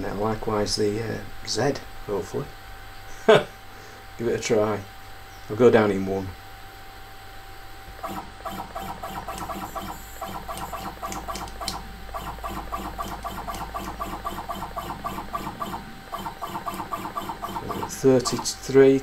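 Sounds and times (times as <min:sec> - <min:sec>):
low hum: 0:00.0 - 0:19.0
stepper motor pulsing whir: 0:06.4 - 0:19.0.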